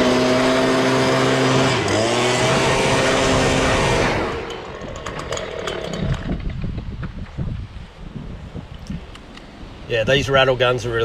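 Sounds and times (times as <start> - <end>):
leaf blower running: 0.0 - 6.6.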